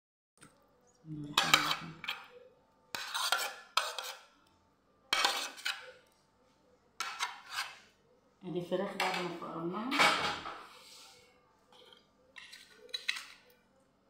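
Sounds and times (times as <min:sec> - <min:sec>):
metal spoon scraping a dish: 0:01.2 - 0:04.4, 0:05.1 - 0:06.2, 0:07.0 - 0:08.0, 0:09.9 - 0:13.6.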